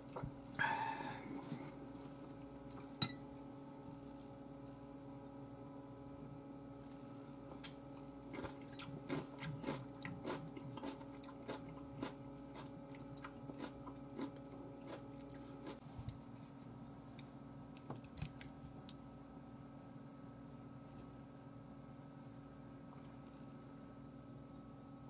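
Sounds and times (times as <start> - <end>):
crunchy chewing: 7.6 - 16.4.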